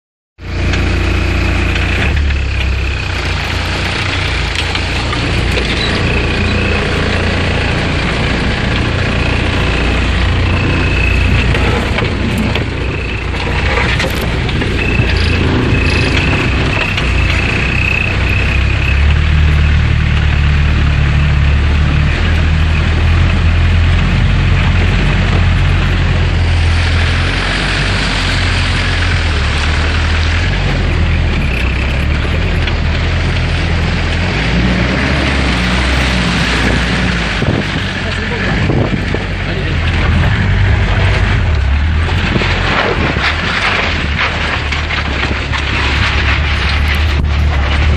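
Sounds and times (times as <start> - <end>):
off-road vehicle engine running: 0.4 - 47.9
water churning and splashing: 0.4 - 47.9.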